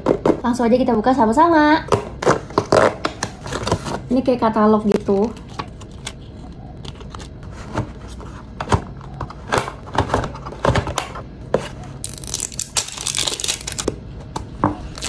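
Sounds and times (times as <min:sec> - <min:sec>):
plastic wrapping crinkling and tearing: 0:12.0 - 0:13.9.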